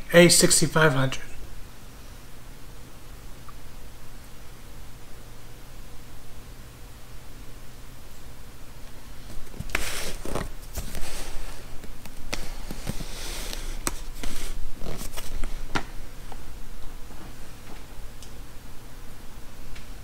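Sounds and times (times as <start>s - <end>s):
cardboard box rustling and sliding: 9.6s - 11.4s.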